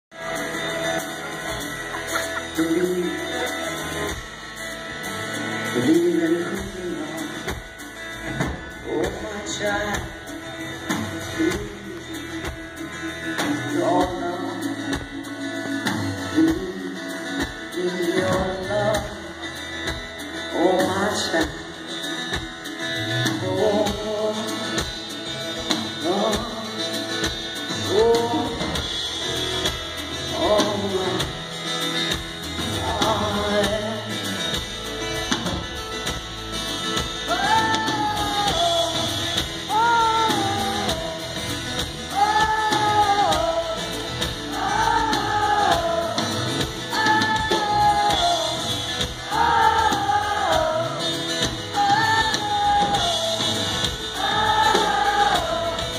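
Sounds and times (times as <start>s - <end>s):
acoustic guitar: 0.0s - 55.9s
woman singing: 37.3s - 41.5s, 42.1s - 55.9s.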